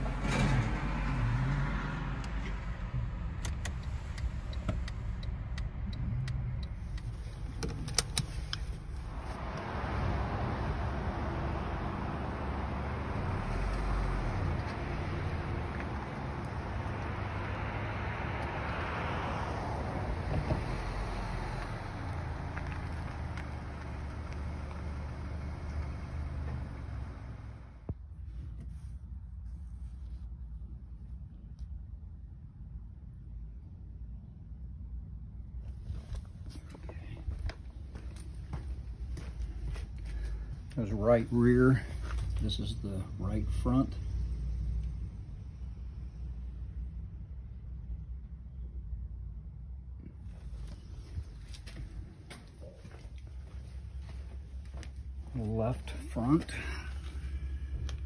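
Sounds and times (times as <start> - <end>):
car engine rumble: 0.0 - 58.0
sharp clicks: 3.2 - 8.8.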